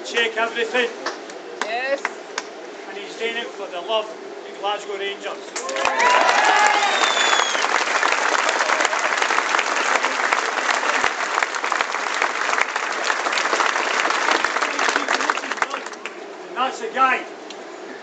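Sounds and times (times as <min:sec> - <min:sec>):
crowd applauding: 0:05.6 - 0:16.2.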